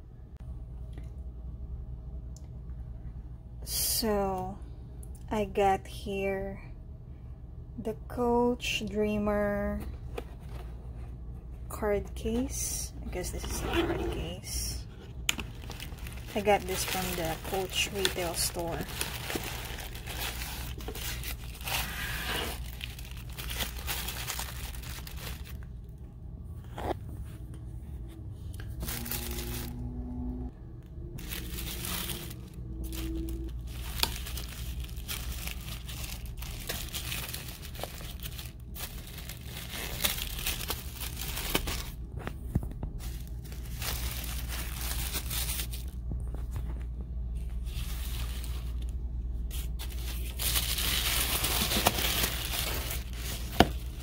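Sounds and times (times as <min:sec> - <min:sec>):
tissue paper crinkling: 0:15.4 - 0:25.6, 0:28.8 - 0:29.7, 0:31.2 - 0:42.0, 0:43.0 - 0:46.0, 0:47.6 - 0:54.0.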